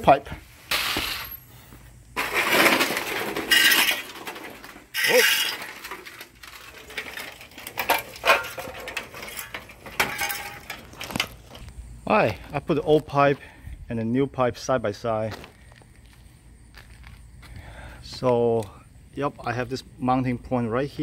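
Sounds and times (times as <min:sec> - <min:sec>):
metal pipes clinking and scraping: 0:02.2 - 0:11.6.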